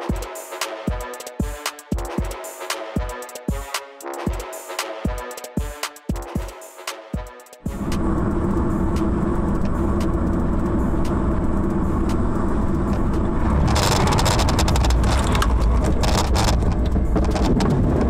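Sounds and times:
road and engine noise in car: 0:07.6 - 0:18.0.

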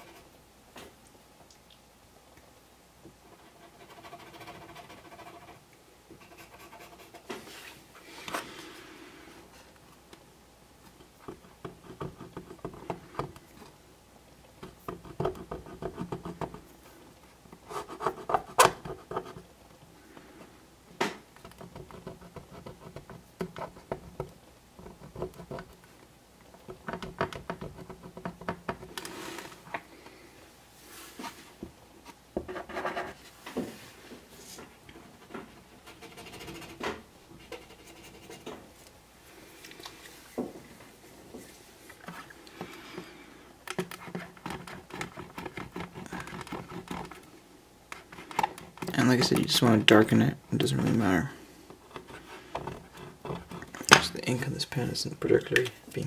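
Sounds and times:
marker scratching over ribbed plastic: 0:03.3 - 0:05.6, 0:06.2 - 0:07.8, 0:35.0 - 0:38.5, 0:43.8 - 0:47.2.

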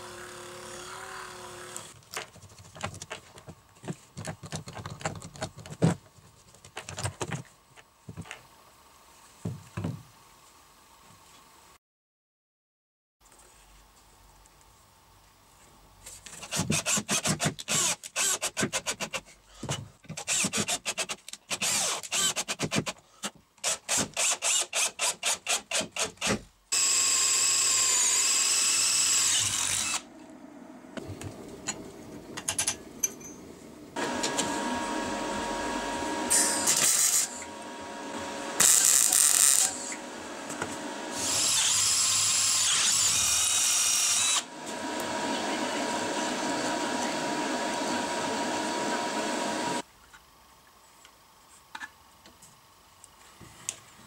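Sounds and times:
power drill boring through steel: 0:00.0 - 0:02.0, 0:26.7 - 0:30.1, 0:34.0 - 0:49.8.

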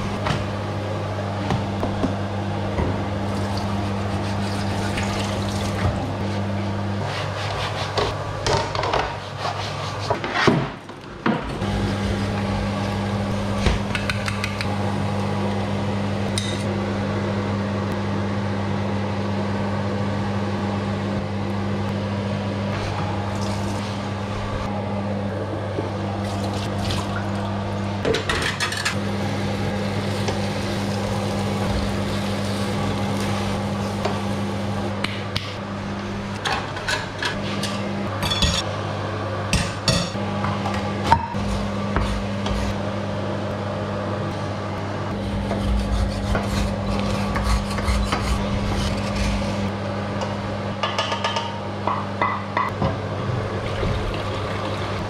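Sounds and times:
steady low hum: 0:11.0 - 0:55.0.

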